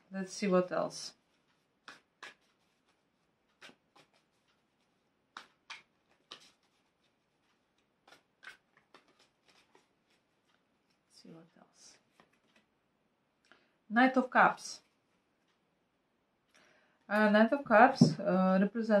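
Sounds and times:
cards being shuffled: 1.2s - 11.1s, 12.1s - 12.7s.

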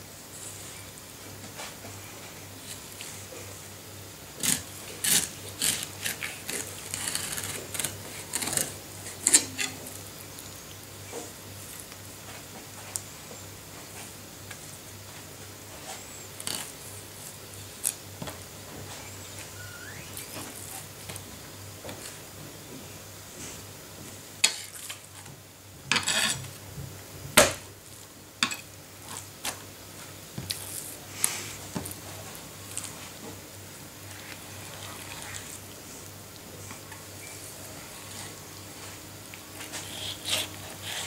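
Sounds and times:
knife on plastic cutting board: 25.9s - 26.4s.

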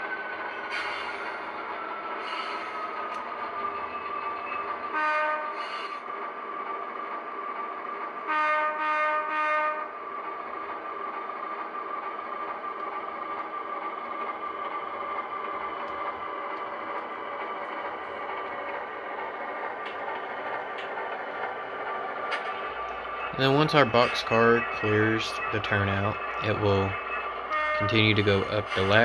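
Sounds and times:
model locomotive engine sound: 7.1s - 29.0s
short horn blasts: 27.5s - 28.1s.

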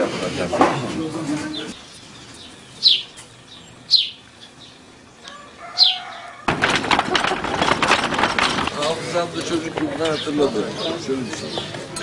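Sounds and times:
bird chirping: 1.4s - 6.4s, 9.9s - 12.0s.

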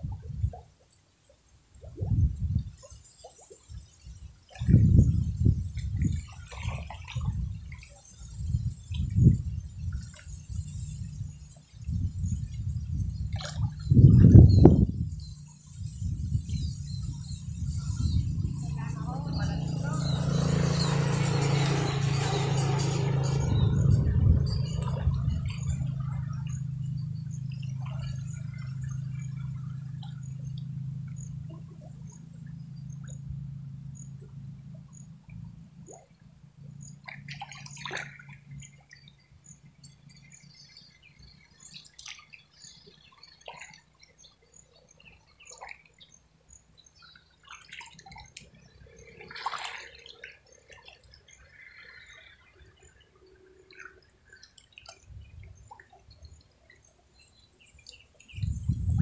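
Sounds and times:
low steady hum: 0.0s - 59.0s
water sloshing and splashing: 0.0s - 59.0s.

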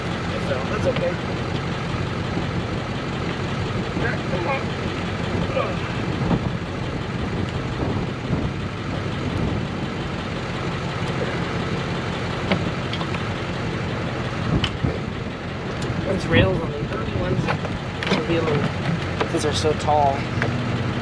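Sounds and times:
engine idling: 0.0s - 21.0s.

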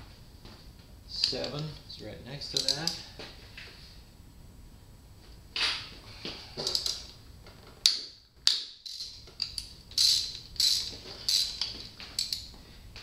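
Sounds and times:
socket ratchet clicking: 7.8s - 12.5s.

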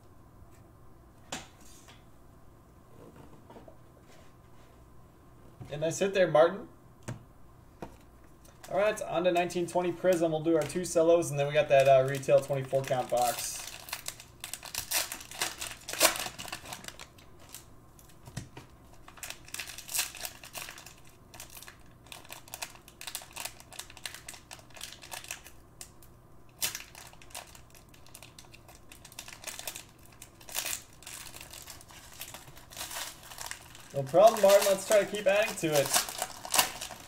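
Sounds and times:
plastic wrappers crinkling: 8.5s - 18.2s, 18.8s - 37.0s.

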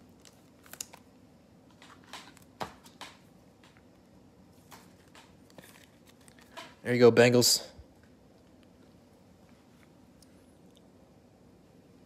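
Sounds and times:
trading cards rustling and clicking: 0.0s - 4.0s, 4.6s - 6.8s.

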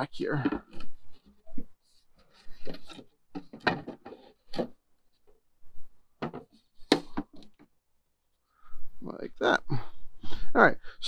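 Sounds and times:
wooden knocks and scrapes: 0.4s - 7.7s.

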